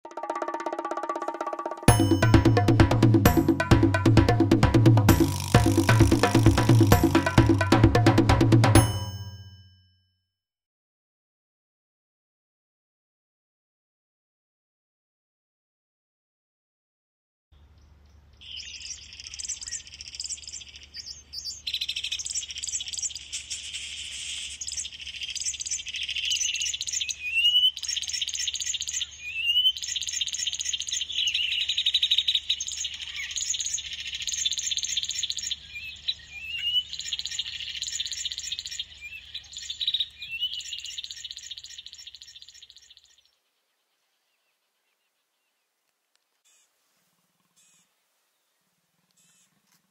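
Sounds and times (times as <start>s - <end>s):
birds chirping and singing: 17.6s - 45.7s
rising whistled bird notes: 18.4s - 43.3s.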